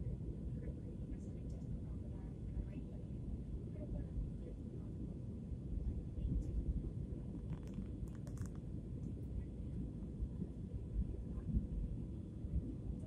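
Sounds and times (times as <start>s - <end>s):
airliner cabin rumble: 0.0s - 13.0s
faint steady hum: 0.0s - 13.0s
faint clicks: 7.4s - 8.6s.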